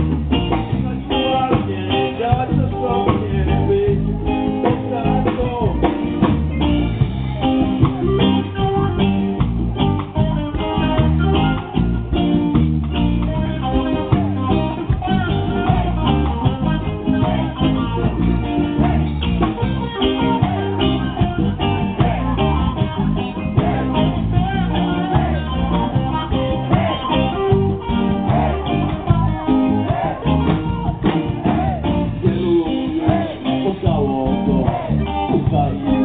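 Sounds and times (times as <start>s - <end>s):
live band through speaker: 0.0s - 36.0s.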